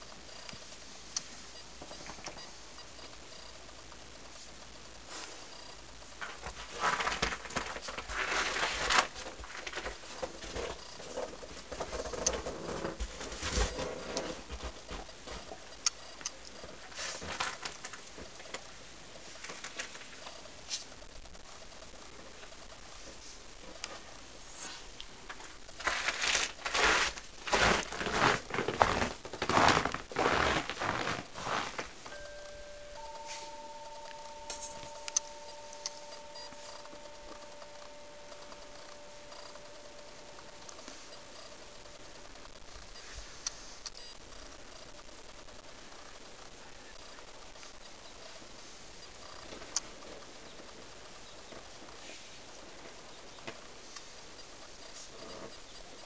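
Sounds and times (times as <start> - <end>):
paws crunching in snow: 25.8 - 32.2.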